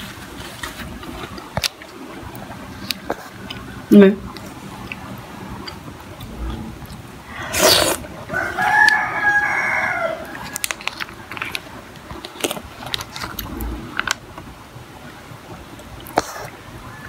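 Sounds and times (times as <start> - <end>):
rooster crowing: 8.3 - 10.8, 16.6 - 17.0.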